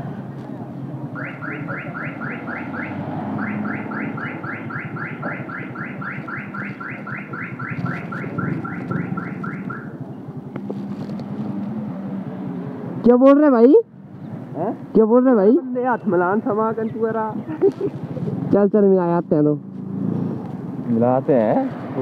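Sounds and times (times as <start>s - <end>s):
electronic alarm chirping: 1.2s - 9.9s.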